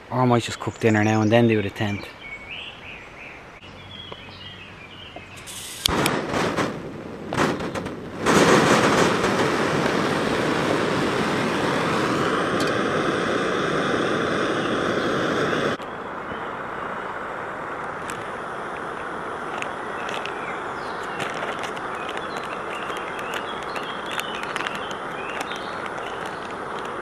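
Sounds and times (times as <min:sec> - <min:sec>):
stove burner rushing: 0:08.2 - 0:15.8.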